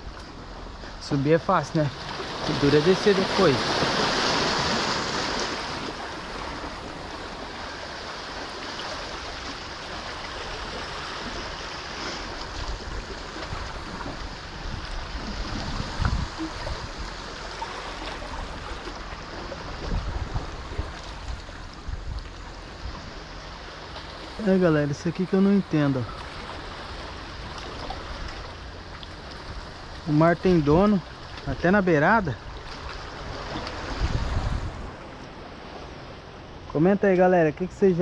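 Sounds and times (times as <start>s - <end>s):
sea washing against rocks: 1.5s - 35.0s
wind on microphone: 12.3s - 23.3s, 33.0s - 35.2s.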